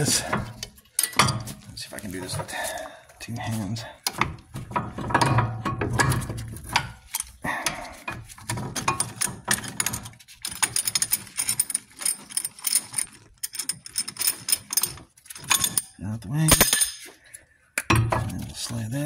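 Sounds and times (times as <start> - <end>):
metal clamp clicking and rattling: 0.1 - 1.6, 4.1 - 7.4, 8.1 - 17.1.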